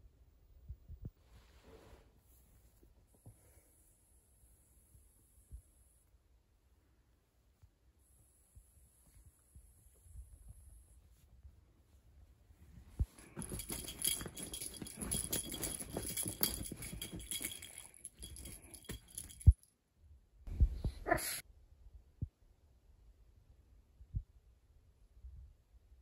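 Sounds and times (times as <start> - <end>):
cat toy rattling and jingling: 13.2 - 19.6.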